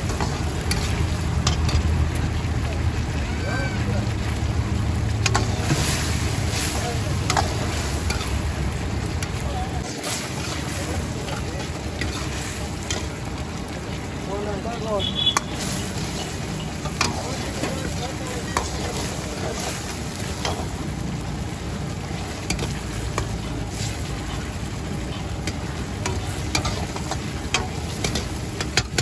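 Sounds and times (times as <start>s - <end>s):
sauce sizzling in a wok: 0.0s - 29.0s
metal ladle scraping a wok: 9.2s - 13.2s, 15.4s - 20.9s, 22.4s - 29.0s.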